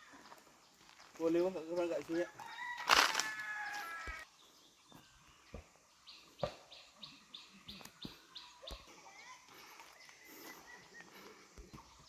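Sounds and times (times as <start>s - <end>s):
rooster crowing: 2.2s - 4.3s.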